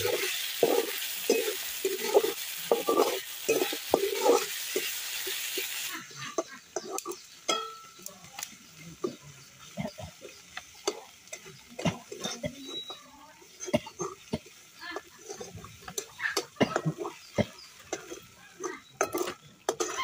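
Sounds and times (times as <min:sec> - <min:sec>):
metal spatula scraping a pan: 0:00.0 - 0:07.7, 0:14.9 - 0:20.0.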